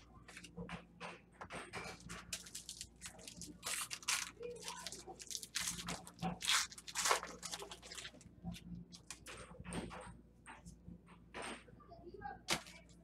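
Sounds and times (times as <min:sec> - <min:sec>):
wrappers crinkling and tearing: 0:02.0 - 0:09.3.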